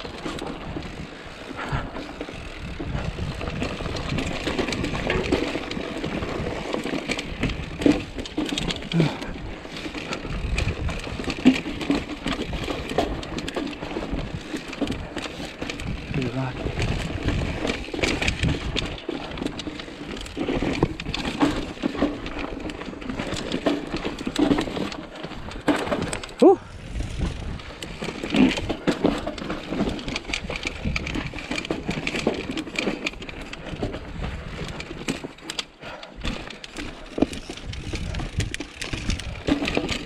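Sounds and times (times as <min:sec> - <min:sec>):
bike clicks and rattles: 0:00.0 - 0:40.0
bike tyres rolling on rock: 0:00.0 - 0:40.0
wind rumble on microphone: 0:01.6 - 0:06.7, 0:10.2 - 0:11.5, 0:12.2 - 0:19.6, 0:26.6 - 0:28.8, 0:30.0 - 0:32.2, 0:37.2 - 0:40.0.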